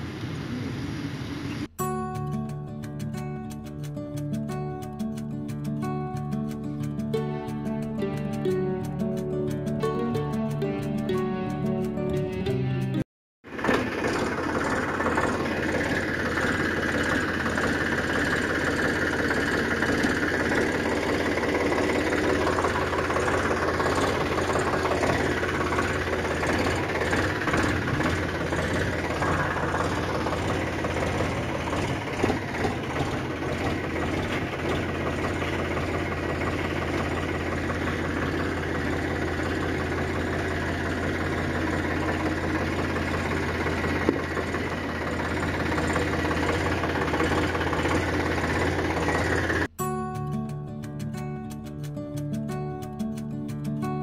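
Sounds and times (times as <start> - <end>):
engine idling: 13.5 - 49.7.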